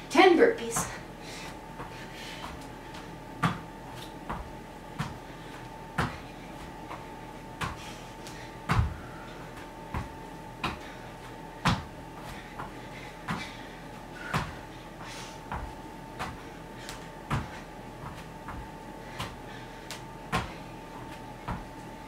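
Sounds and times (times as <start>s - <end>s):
faint steady hum: 0.0s - 22.0s
thuds on a yoga mat: 3.4s - 5.2s, 5.9s - 6.2s, 8.6s - 9.1s, 9.9s - 10.9s, 11.6s - 11.9s, 14.2s - 14.6s, 15.5s - 16.4s, 17.2s - 19.4s, 20.3s - 20.6s.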